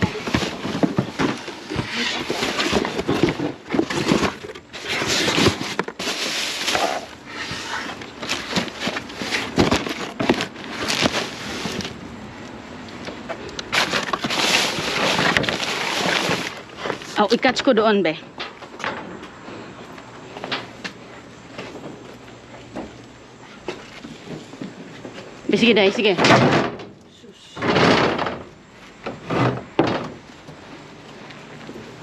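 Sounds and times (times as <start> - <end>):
cardboard boxes scraping: 0.0 - 12.0, 13.7 - 17.4
plastic wrap and bags crinkling: 8.0 - 12.0, 13.7 - 17.5.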